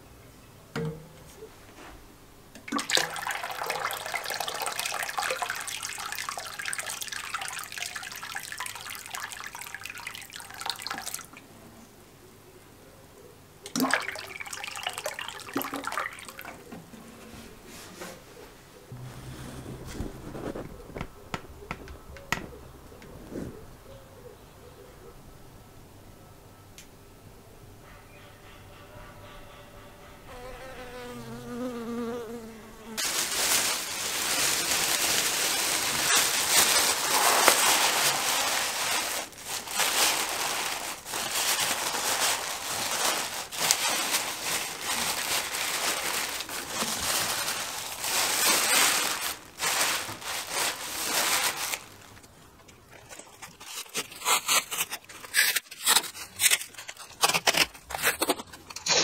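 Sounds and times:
plastic bag crinkling: 0:02.8 - 0:11.4, 0:13.7 - 0:16.7, 0:18.9 - 0:22.7, 0:33.0 - 0:59.0
honeybee buzzing: 0:30.3 - 0:33.0
masking tape ripping off roll: 0:33.0 - 0:52.2, 0:53.1 - 0:59.0.

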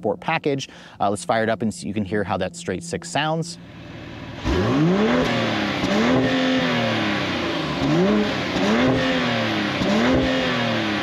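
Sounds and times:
car engine revving: 0:03.5 - 0:11.0.

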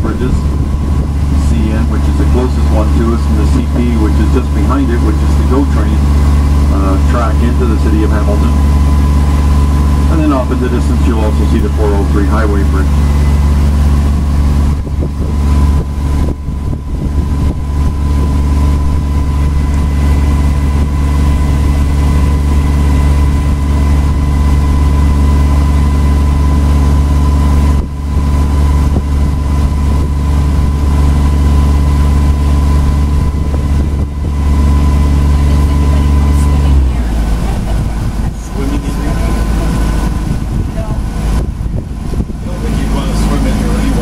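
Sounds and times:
boat engine hum: 0:00.0 - 0:44.0
thin steady whine: 0:00.0 - 0:44.0.

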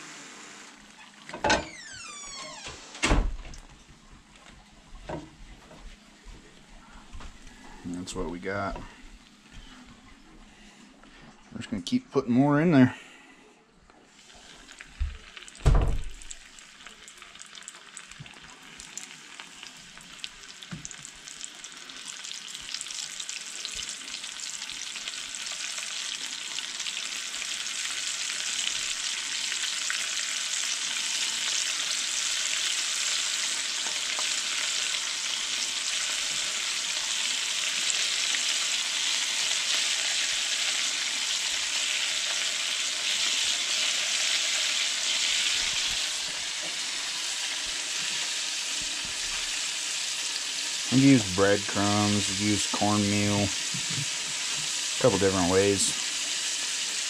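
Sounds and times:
fish deep-frying in oil: 0:14.2 - 0:57.0
dull thump: 0:15.6 - 0:16.1.

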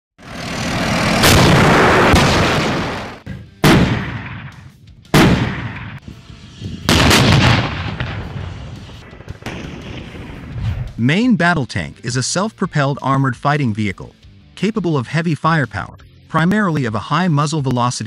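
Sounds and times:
rumble: 0:00.2 - 0:11.0
sudden loud booms: 0:01.1 - 0:04.6, 0:06.9 - 0:11.0.

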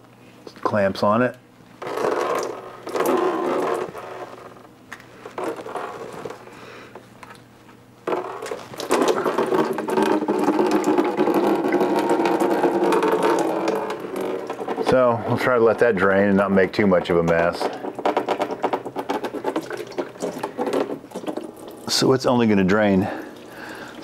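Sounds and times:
coolant splashing into drain pan: 0:01.8 - 0:04.2, 0:08.1 - 0:24.0.

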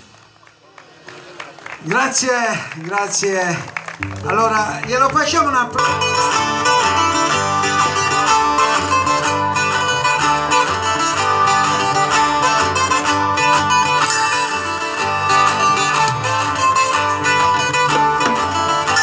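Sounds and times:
plucked guitars: 0:03.8 - 0:19.0
rhythmic bass line: 0:03.9 - 0:19.0.

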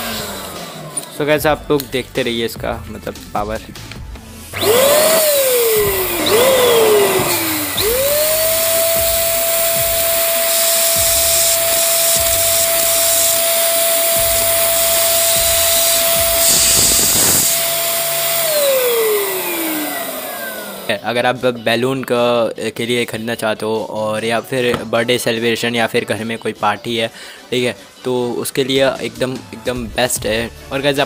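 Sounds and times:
balloon inflator motor whining: 0:00.0 - 0:01.2, 0:04.3 - 0:21.0.

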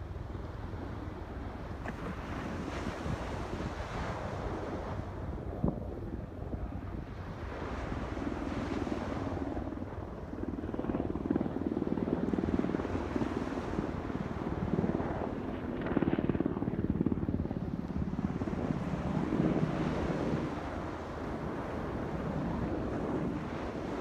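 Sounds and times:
small waves breaking on sand: 0:01.8 - 0:05.0.

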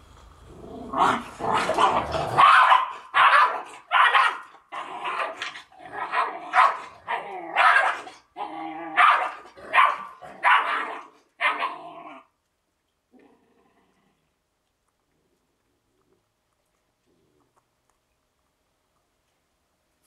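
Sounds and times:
dog growling: 0:00.5 - 0:02.5, 0:13.1 - 0:14.3
puppy barking and yapping: 0:01.0 - 0:12.2.

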